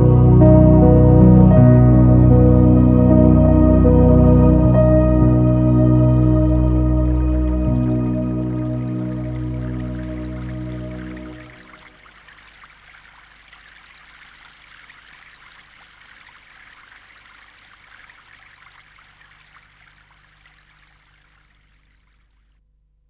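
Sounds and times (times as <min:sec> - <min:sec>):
water trickling like a stream: 0:09.1 - 0:22.6.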